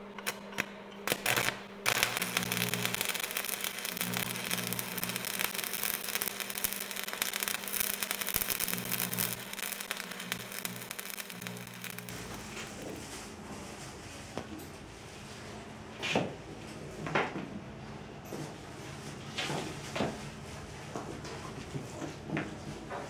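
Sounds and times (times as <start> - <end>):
low steady hum: 0.0 - 13.1
crackling static: 1.1 - 13.0.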